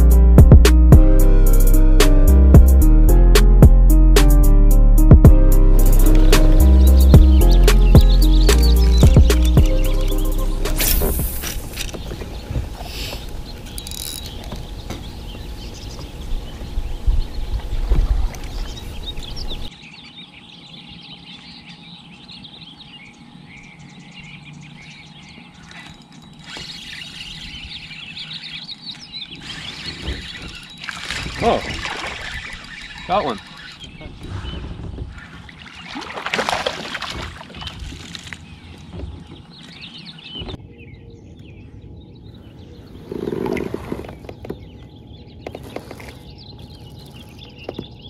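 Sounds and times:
small birds chirping: 5.8s - 36.1s, 37.4s - 48.0s
water splashing beside kayak: 17.5s - 19.7s, 28.8s - 40.4s.

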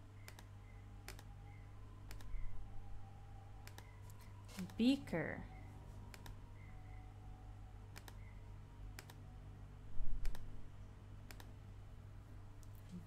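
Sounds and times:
low steady hum: 0.0s - 13.0s
computer mouse clicks: 0.2s - 0.5s, 1.1s - 1.3s, 2.1s - 2.4s, 3.6s - 4.8s, 6.1s - 6.4s, 7.9s - 8.3s, 9.0s - 9.2s, 10.2s - 10.5s, 11.3s - 11.5s.

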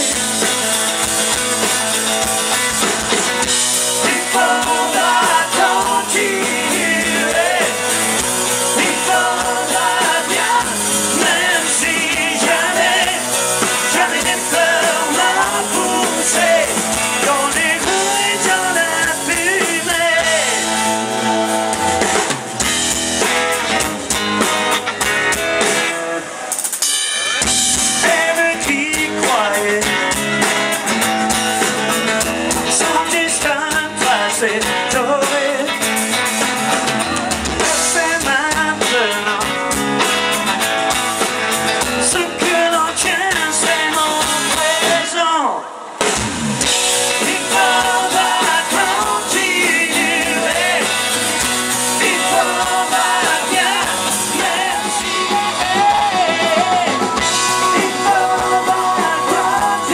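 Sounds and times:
live rock band playing: 0.0s - 59.9s
person singing: 3.9s - 21.4s, 28.0s - 30.2s, 37.6s - 39.6s, 47.1s - 59.9s.

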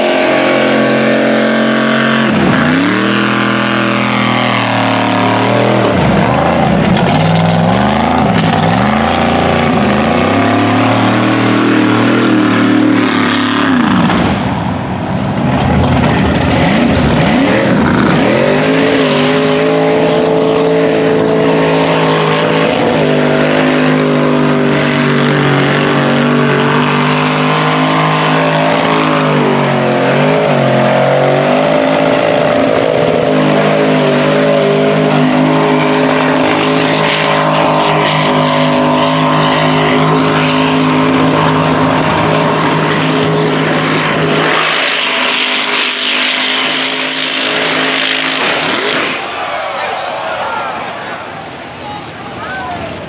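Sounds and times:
tires spinning in mud: 0.0s - 53.0s
truck engines revving: 0.0s - 53.0s.

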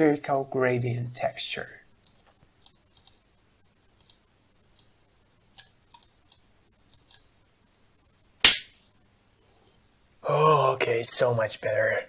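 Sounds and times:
computer mouse clicking: 2.0s - 3.2s, 4.0s - 5.0s, 5.6s - 7.3s.

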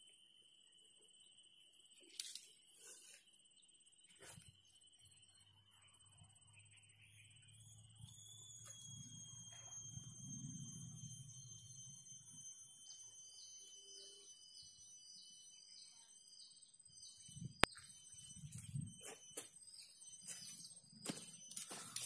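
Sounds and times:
insects droning: 0.0s - 22.0s
pulsing insect call: 0.0s - 22.0s.

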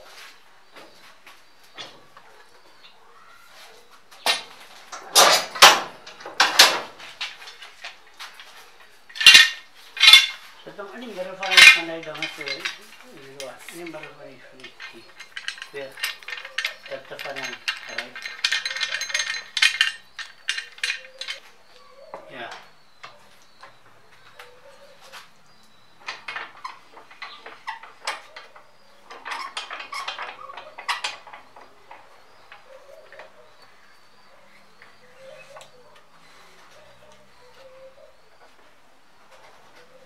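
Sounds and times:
metallic clanks of tools: 4.2s - 8.0s, 9.1s - 10.5s, 11.4s - 21.5s, 25.8s - 33.3s
small clicks and rattles: 4.2s - 10.5s, 11.4s - 21.9s, 26.0s - 33.5s.

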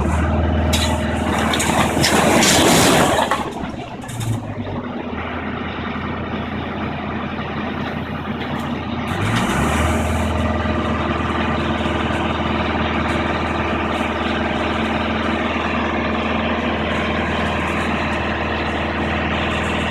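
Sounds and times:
heavy diesel excavator engine: 0.0s - 19.9s
falling rubble: 0.2s - 4.9s.

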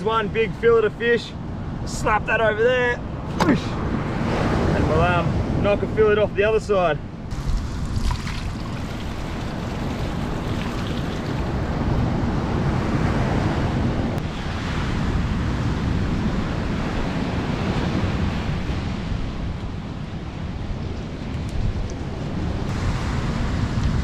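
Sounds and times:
wind buffeting microphone: 0.0s - 24.0s
surf breaking on beach: 7.3s - 15.8s, 22.7s - 24.0s.

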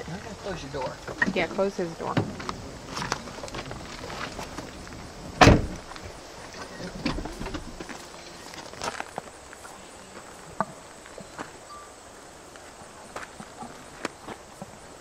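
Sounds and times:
car door shutting: 5.4s - 5.9s.

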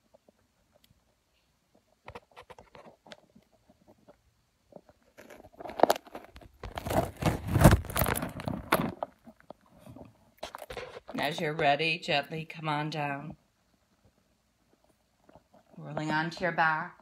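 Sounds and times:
light clicks and rustles: 0.0s - 11.5s.

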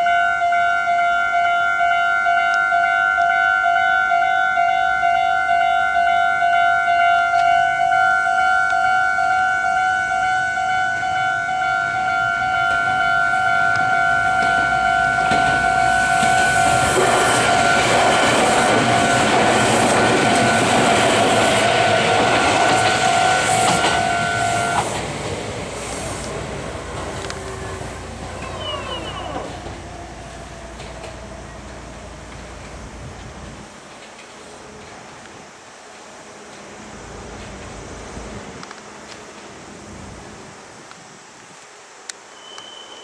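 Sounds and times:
level crossing alarm ringing: 0.0s - 25.0s
electric train passing: 0.0s - 40.9s.

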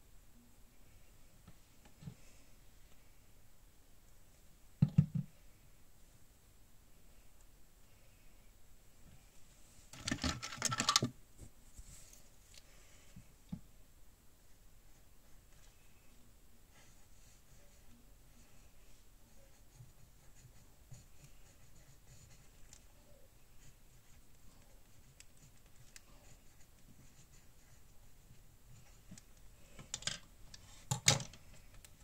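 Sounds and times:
pen scratching on paper: 19.3s - 29.1s.

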